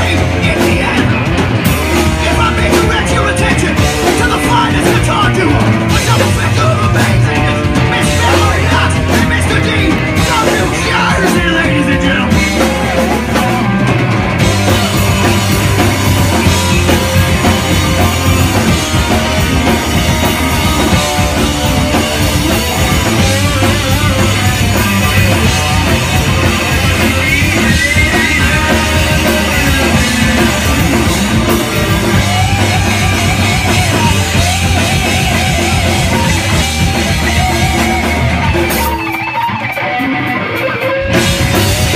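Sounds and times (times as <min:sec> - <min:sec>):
distorted electric guitars: 0:00.0 - 0:41.9
drum kit: 0:00.0 - 0:41.9.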